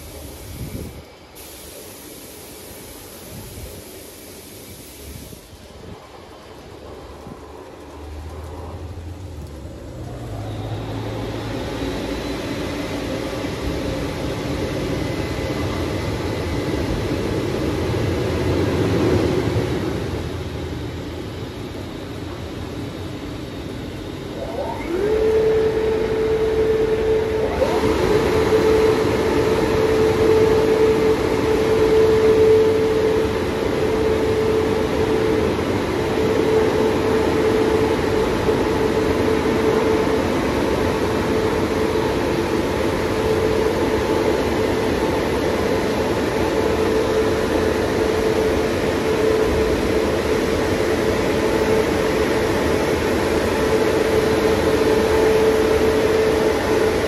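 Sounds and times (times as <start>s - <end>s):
blower hum: 23.1s - 57.0s.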